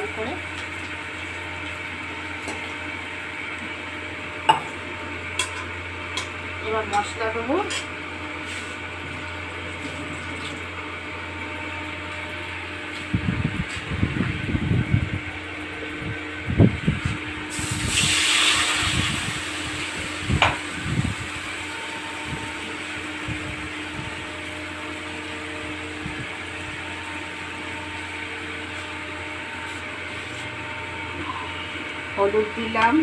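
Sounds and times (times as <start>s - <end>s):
fan-like hum: 0.0s - 33.0s
spices sizzling in hot oil: 17.5s - 28.1s.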